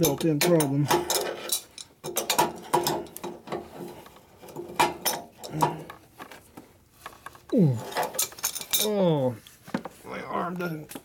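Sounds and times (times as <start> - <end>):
wrench clinking and scraping metal: 0.0 - 5.8, 7.8 - 9.0
person groaning with effort: 7.5 - 8.0.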